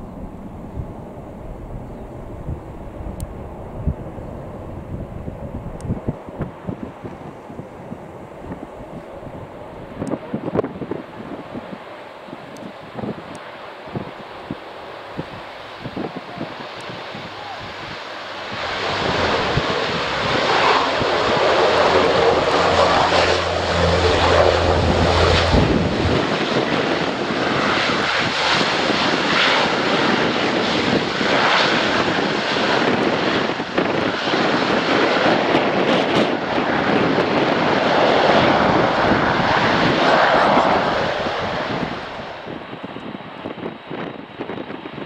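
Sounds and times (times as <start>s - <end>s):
low hum: 0.0s - 6.0s, 17.7s - 26.8s
turboprop engines running: 0.0s - 45.0s.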